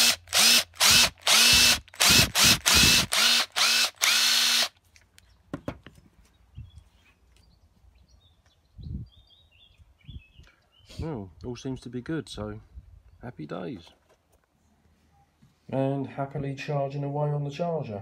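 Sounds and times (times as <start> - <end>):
cordless tool motor spinning up: 0.0 - 4.8.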